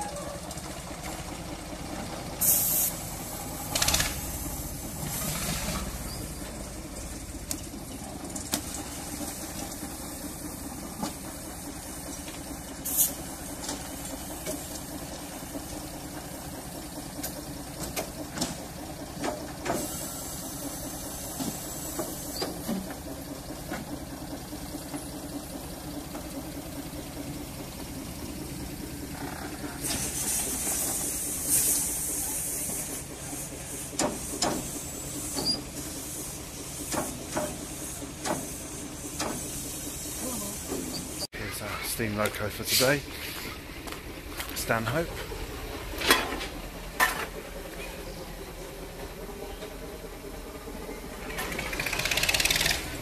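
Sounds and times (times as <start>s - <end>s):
loud blow of steam: 2.4s - 6.4s
steam hiss: 2.4s - 6.8s, 8.7s - 13.5s, 19.6s - 22.6s, 29.8s - 41.3s.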